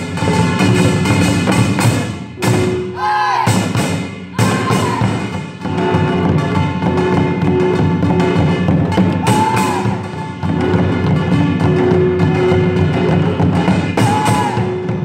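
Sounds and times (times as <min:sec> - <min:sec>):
drums beating fast rhythm: 0:00.0 - 0:15.0.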